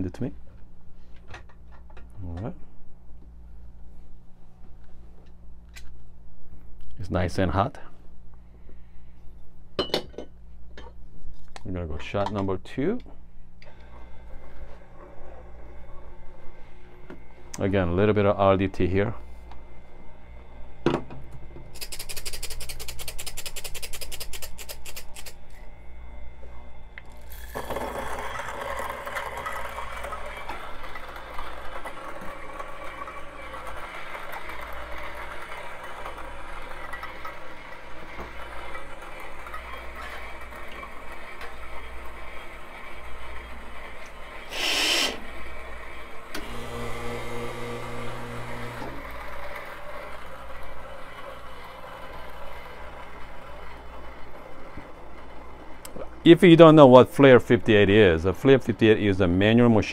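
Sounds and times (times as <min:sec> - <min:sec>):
coffee beans rattling into grinder: 0:21.7 - 0:25.4, 0:27.1 - 0:45.7, 0:48.6 - 0:54.5
electric grinder grinding: 0:27.1 - 0:55.2.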